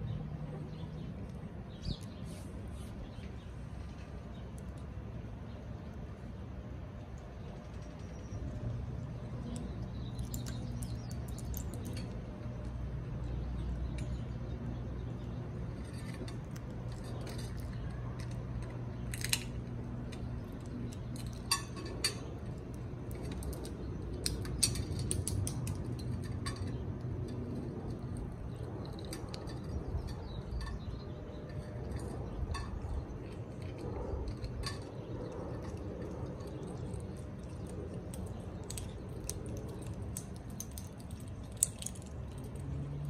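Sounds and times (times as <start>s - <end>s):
parrot beaks clicking and tapping: 16.6s - 30.9s, 32.0s - 43.0s.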